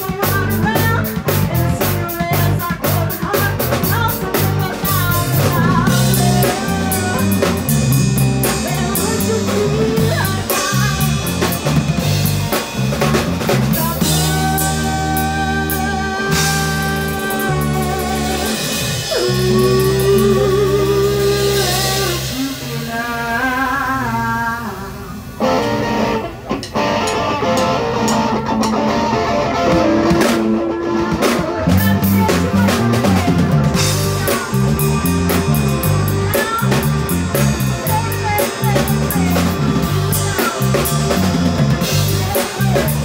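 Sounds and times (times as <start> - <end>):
bass guitar: 0.0 - 43.0
drum kit: 0.0 - 43.0
electric guitar: 0.0 - 43.0.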